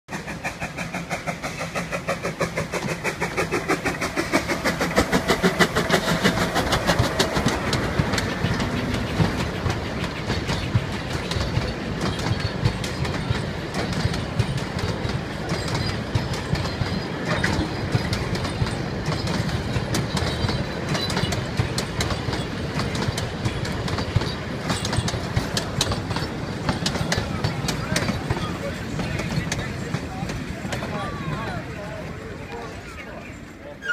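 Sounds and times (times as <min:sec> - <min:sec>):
steam locomotive exhaust beating: 0:00.1 - 0:33.4
carriages clattering over rail joints: 0:00.1 - 0:33.9.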